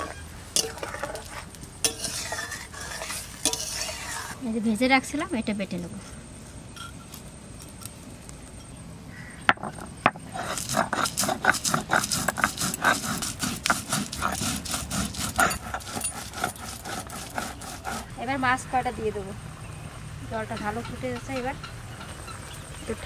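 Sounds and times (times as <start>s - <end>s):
stone grinding strokes: 0.0s - 4.4s, 9.5s - 18.1s
stone roller knocking: 9.5s - 18.1s.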